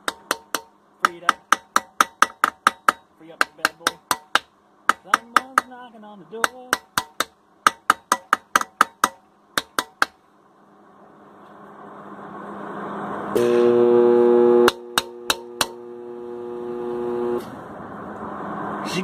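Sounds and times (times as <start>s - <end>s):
sledgehammer tapping on steel: 0.0s - 5.8s, 6.4s - 10.2s, 14.7s - 15.8s
loud electrical hum: 9.2s - 19.0s.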